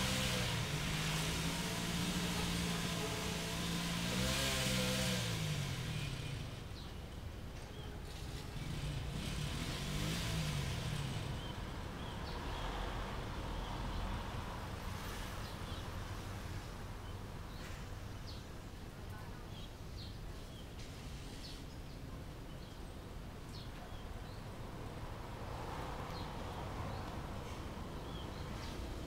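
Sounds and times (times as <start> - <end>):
vehicle engine revving: 0.0 - 6.9, 8.1 - 13.8.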